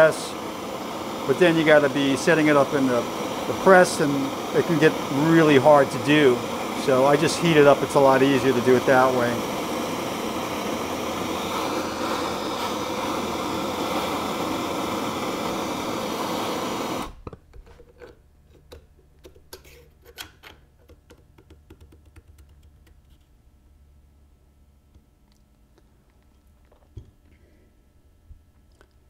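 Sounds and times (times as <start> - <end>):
propane torch burning: 0.0 - 17.4.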